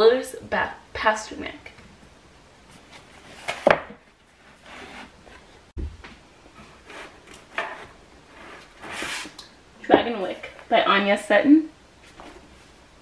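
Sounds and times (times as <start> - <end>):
books sliding on wooden shelf: 2.9 - 5.5, 6.6 - 9.4
dull low thump: 5.8 - 6.2.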